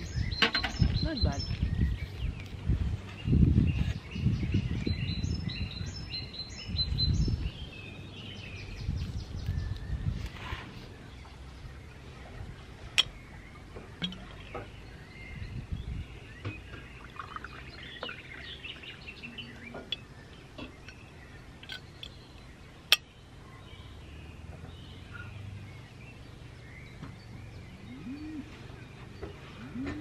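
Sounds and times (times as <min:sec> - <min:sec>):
birds chirping: 0:00.0 - 0:30.0
sharp glass clicks: 0:13.0 - 0:13.2, 0:14.0 - 0:14.6, 0:21.6 - 0:23.1
water pouring into glass: 0:17.0 - 0:18.5.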